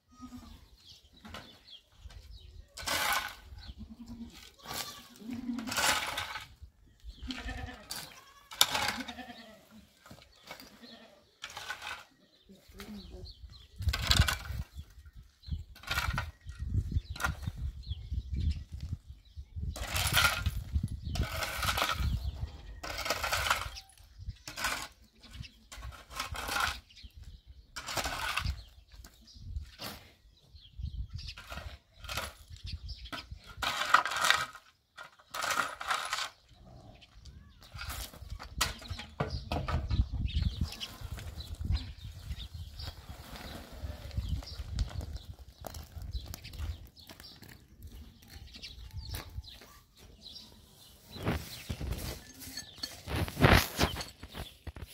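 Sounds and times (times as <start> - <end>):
shovel scraping gravelly soil: 2.6 - 3.8, 4.5 - 6.6, 7.4 - 9.5, 10.1 - 12.3, 15.7 - 16.5, 19.8 - 27.0, 27.8 - 28.8, 31.3 - 32.5, 33.5 - 36.5, 40.6 - 46.1, 50.8 - 54.9
goat bleating: 3.7 - 5.7, 7.2 - 9.8.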